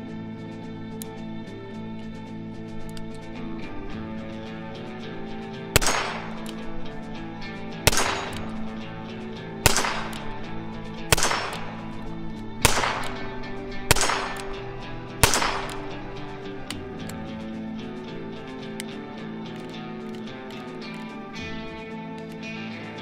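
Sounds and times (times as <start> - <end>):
revolver shots: 5.8 - 17.3.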